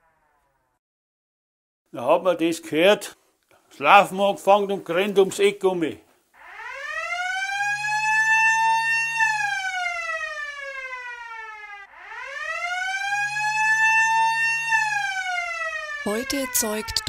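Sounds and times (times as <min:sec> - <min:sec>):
siren wailing: 0:00.0 - 0:00.8, 0:06.4 - 0:17.0.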